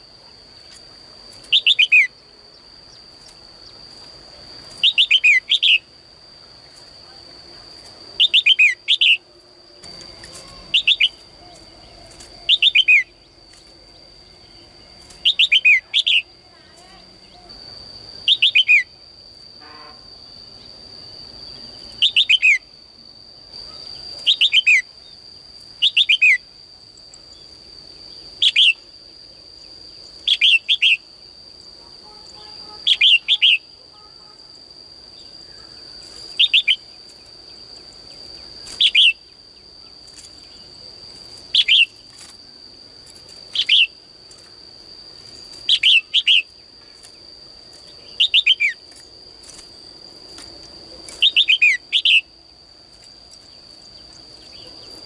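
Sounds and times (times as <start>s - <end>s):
bird chirping: 1.5s - 3.8s, 4.7s - 5.9s, 8.2s - 9.2s, 9.8s - 16.3s, 18.2s - 19.0s, 21.9s - 22.7s, 32.3s - 33.7s, 41.5s - 42.0s.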